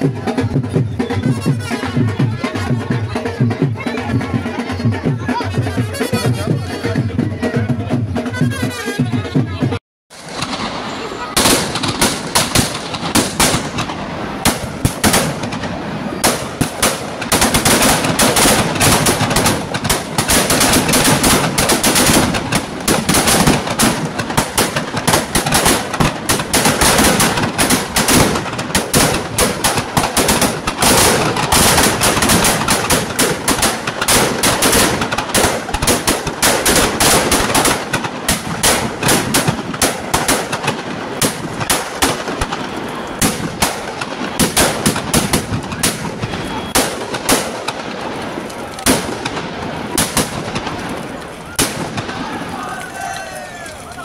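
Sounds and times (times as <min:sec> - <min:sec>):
firecrackers crackling: 0:00.0 - 0:07.5, 0:10.1 - 0:54.0.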